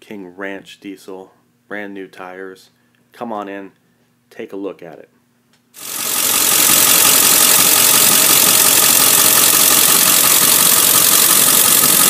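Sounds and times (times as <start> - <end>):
diesel engine idling: 5.8 - 12.0.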